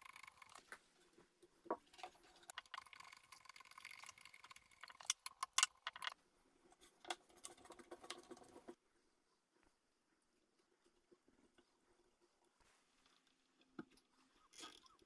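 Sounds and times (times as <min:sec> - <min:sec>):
cable rustling and scraping: 0:00.0 - 0:08.8
sharp cable clicks: 0:02.5 - 0:06.2.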